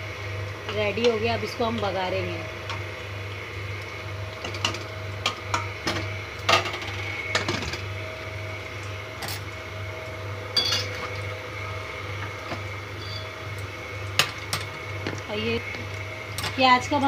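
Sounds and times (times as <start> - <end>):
steady low hum: 0.0 - 17.0
metal utensils clinking on pots: 10.6 - 11.0.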